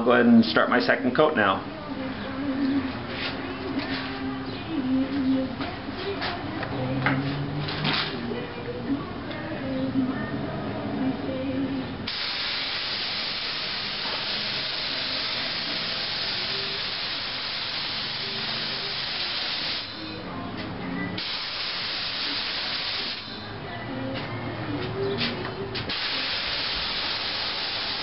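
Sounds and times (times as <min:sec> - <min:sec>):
paint spray gun hissing: 0:12.1 - 0:20.0, 0:21.2 - 0:23.4, 0:25.9 - 0:28.0.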